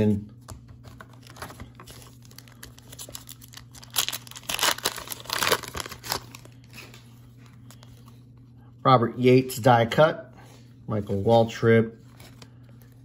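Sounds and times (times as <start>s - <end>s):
foil card pack tearing: 1.2s - 6.9s
wrapper crinkling: 1.2s - 7.1s.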